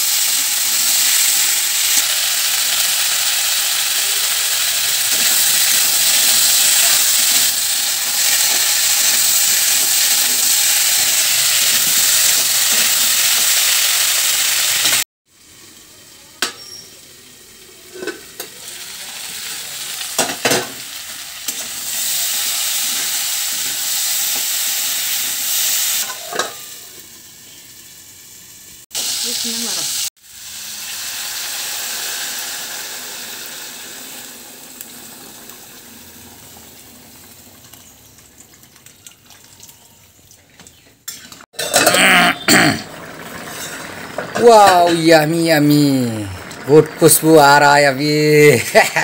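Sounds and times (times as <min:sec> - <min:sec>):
vegetables sizzling in oil: 0:00.0 - 0:49.0
spatula scraping pan: 0:43.4 - 0:44.3.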